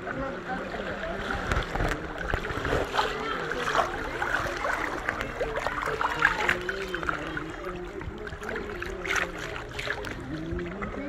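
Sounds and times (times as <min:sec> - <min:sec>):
sharp water splashes: 0:00.6 - 0:10.8.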